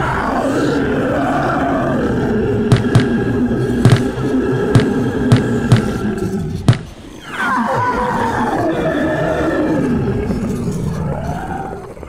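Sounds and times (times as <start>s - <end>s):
cartoon footstep thumps: 2.7s - 3.2s, 4.8s - 6.0s, 6.7s - 6.9s.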